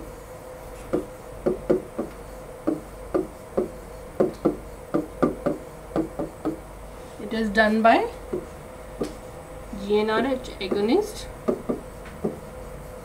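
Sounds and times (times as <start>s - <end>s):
stylus tapping on glass: 2.7s - 6.6s.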